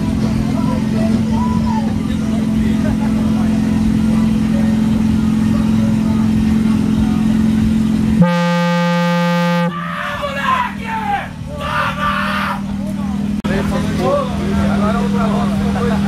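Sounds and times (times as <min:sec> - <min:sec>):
loud low droning speaker tone: 0:00.0 - 0:16.0
voices: 0:00.0 - 0:16.0
horn-like tone: 0:08.2 - 0:09.9.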